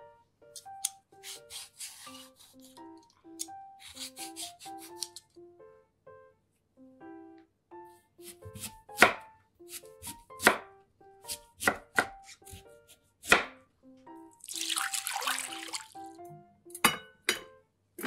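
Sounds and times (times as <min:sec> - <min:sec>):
light background music: 0:00.0 - 0:18.0
knife chopping on cutting board: 0:00.6 - 0:02.8, 0:03.8 - 0:05.2, 0:08.2 - 0:13.6.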